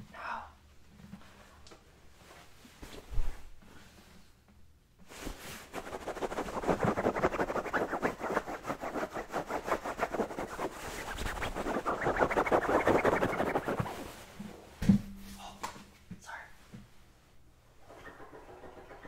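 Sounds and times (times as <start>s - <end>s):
fingernails scratching fabric: 5.7s - 14.1s
thump: 14.8s - 15.2s.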